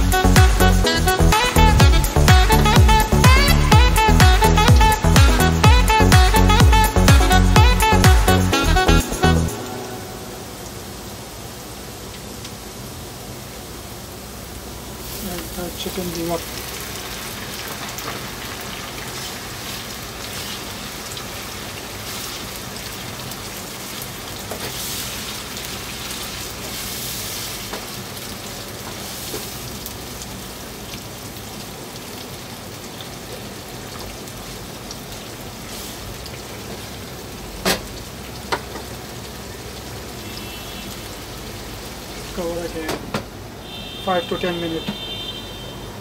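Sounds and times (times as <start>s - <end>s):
liver sizzling in frying pan: 10.4s - 44.4s.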